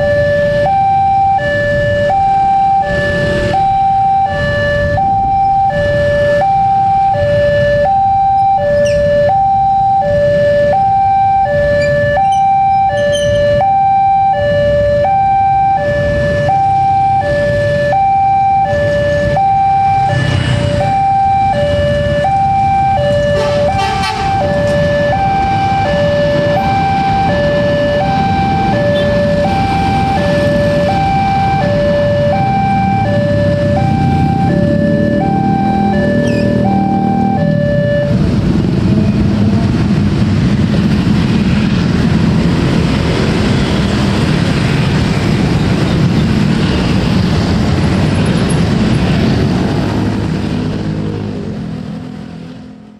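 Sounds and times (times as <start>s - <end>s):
level crossing two-tone alarm: 0.0s - 38.3s.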